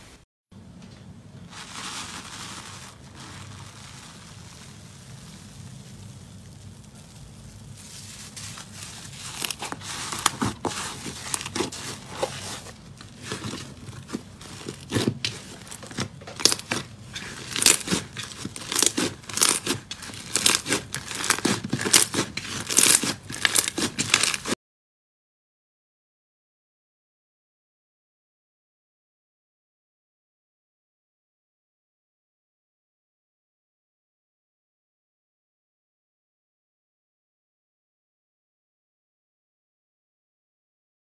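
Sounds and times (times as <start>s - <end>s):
slime crackling and popping: 1.6s - 24.6s.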